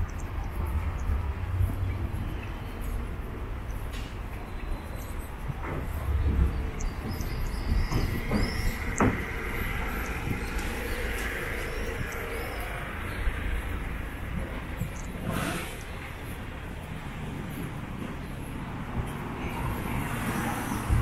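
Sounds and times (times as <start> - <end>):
passing vehicles rumbling: 0.0 - 21.0
knocks and clatters: 5.5 - 11.4.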